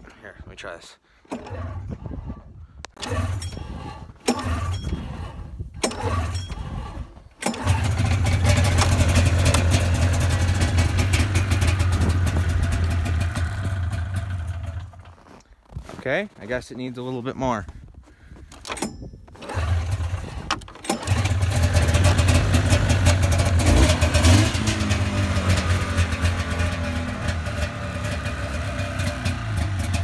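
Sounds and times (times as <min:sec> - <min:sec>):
recoil starter pulls: 0:01.2 - 0:15.5, 0:18.2 - 0:30.0
engine turning over: 0:01.3 - 0:15.4, 0:18.6 - 0:30.0
two-stroke engine running: 0:04.2 - 0:15.0, 0:19.4 - 0:30.0.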